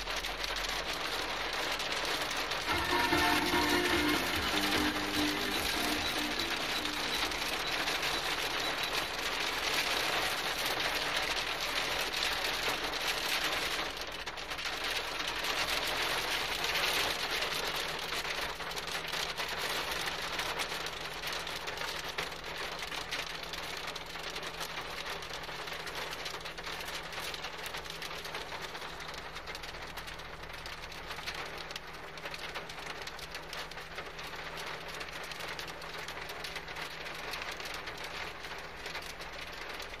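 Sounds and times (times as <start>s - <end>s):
hail pelting a car roof: 0.0s - 40.0s.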